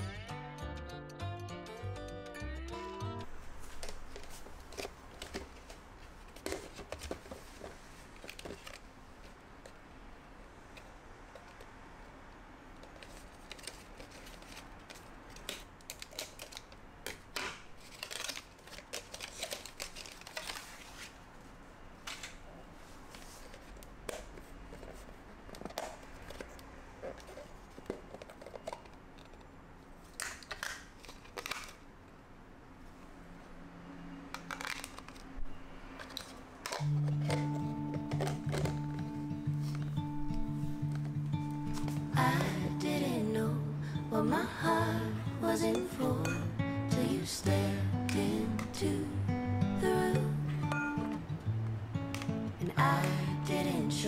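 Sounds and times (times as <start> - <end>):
cardboard packaging rustling: 3.3 - 9.8, 12.8 - 29.4, 36.0 - 42.4.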